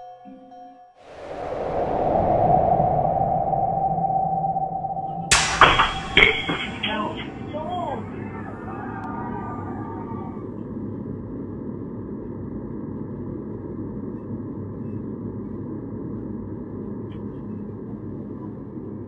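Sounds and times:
microphone hiss and low hum: 5.1 - 18.7.

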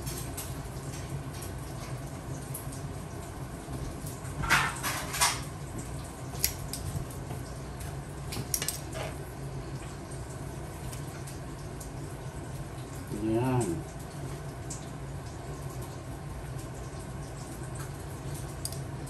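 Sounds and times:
metal tongs clinking on frying pan: 8.5 - 8.9, 18.6 - 18.9.

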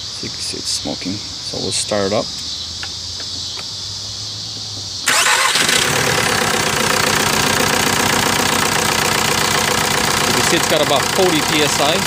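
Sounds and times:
diesel engine starting and idling: 5.0 - 12.0.

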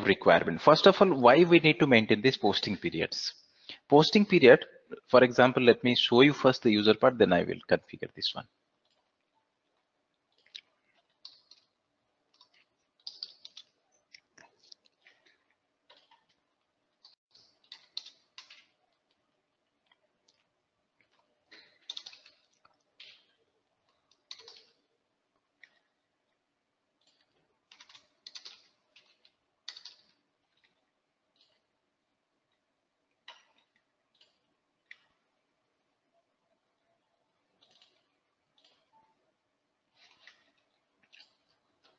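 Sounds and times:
computer keyboard typing: 8.8 - 19.2, 19.8 - 24.9, 27.0 - 31.6, 37.4 - 39.3.

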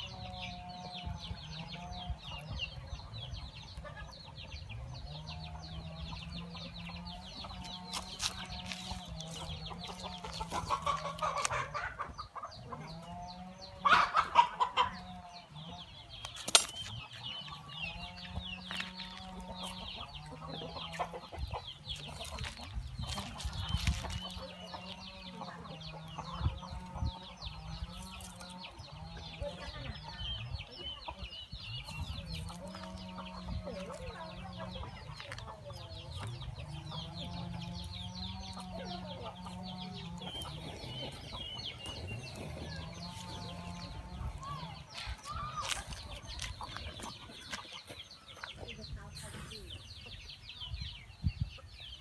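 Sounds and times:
chickens clucking: 0.0 - 52.0.

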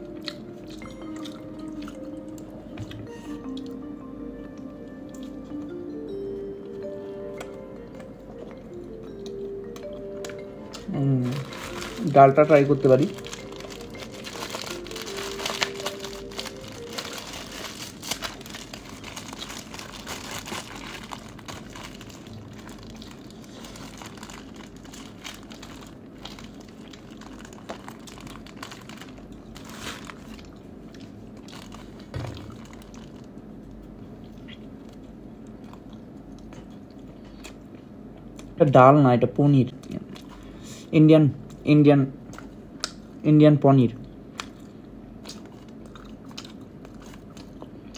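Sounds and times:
plastic bag crinkling: 10.8 - 33.4.

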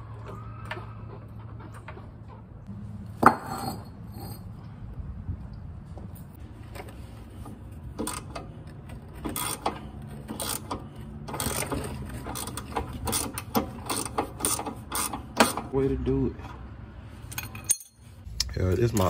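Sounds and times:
ratchet wrench clicking: 9.3 - 15.6.

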